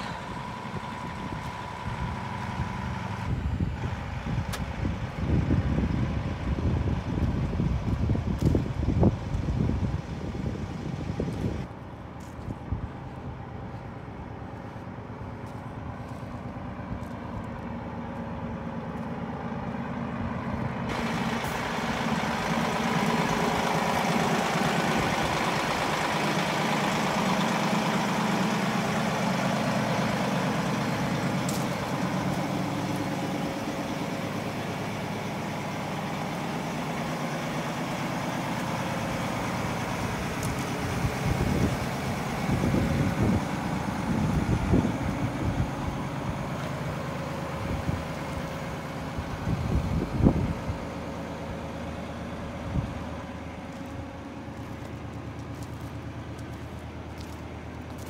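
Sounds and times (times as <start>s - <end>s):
excavator diesel engine running: 0.0s - 58.0s.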